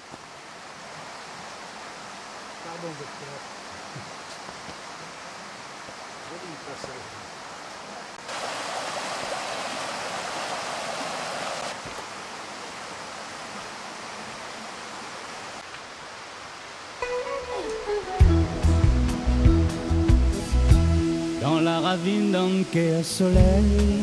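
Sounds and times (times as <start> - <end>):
running water rushing: 0.0 - 24.0
music: 17.0 - 24.0.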